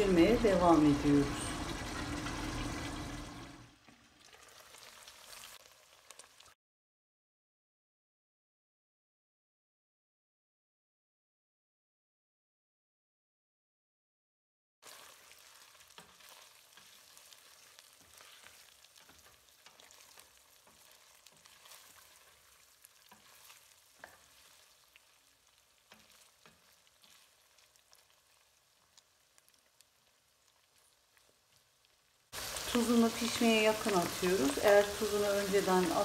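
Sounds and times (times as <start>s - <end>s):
meat sizzling in pot: 0.0s - 6.6s, 14.8s - 36.0s
wooden spoon scraping pot: 16.0s - 24.8s.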